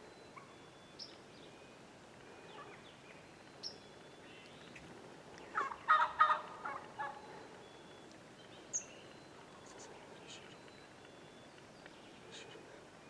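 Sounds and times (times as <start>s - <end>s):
turkey gobbling: 5.5s - 7.2s.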